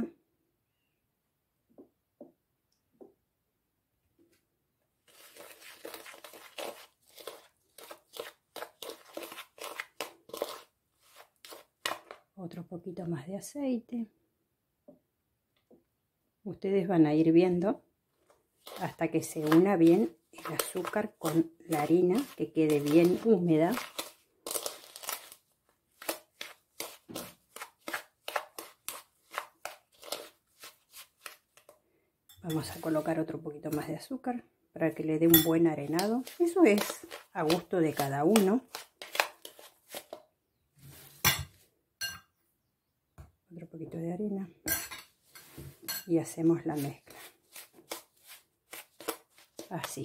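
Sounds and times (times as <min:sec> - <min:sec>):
metal spoon scraping bowl: 0:05.1 - 0:12.2, 0:18.6 - 0:25.4, 0:26.0 - 0:31.7, 0:35.2 - 0:40.2, 0:44.7 - 0:50.0.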